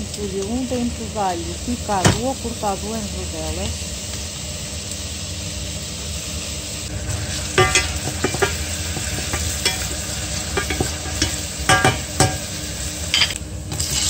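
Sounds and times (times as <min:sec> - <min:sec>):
onion and garlic sizzling in oil: 0:00.0 - 0:14.0
spoon scraping a metal pan: 0:07.5 - 0:12.4, 0:13.1 - 0:14.0.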